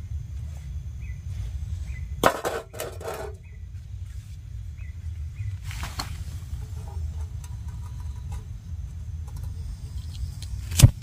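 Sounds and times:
low rumble: 0:00.0 - 0:11.0
faint bird chirps: 0:01.0 - 0:02.2, 0:04.7 - 0:05.6.

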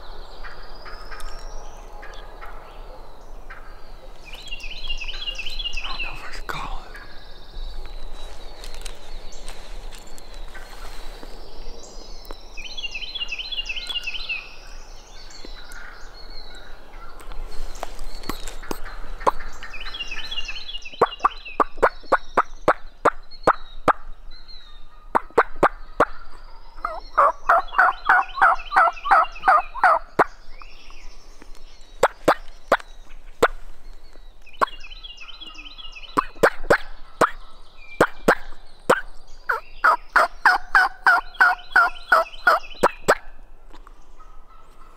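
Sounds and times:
turkey gobbling: 0:26.8 - 0:30.3, 0:36.2 - 0:43.2.

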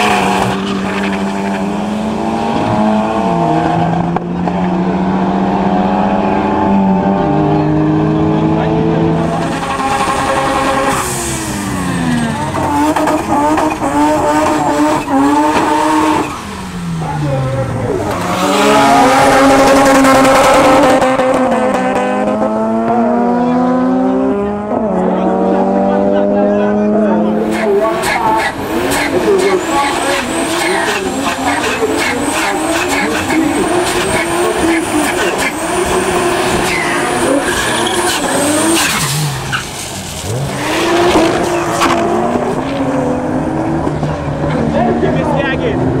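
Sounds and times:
race car engines accelerating: 0:00.0 - 0:46.0
tyres squealing: 0:27.4 - 0:40.4.

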